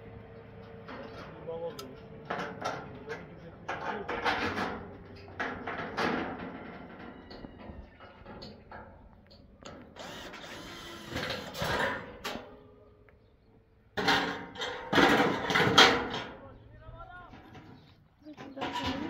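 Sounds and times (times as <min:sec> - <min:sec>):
power drill driving screws: 0:10.0 - 0:12.0.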